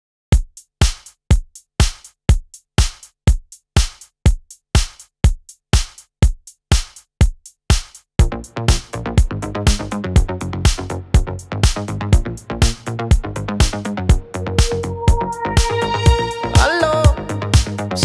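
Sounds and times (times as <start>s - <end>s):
house drum beat: 0.3s - 18.0s
synth chords: 12.2s - 18.0s.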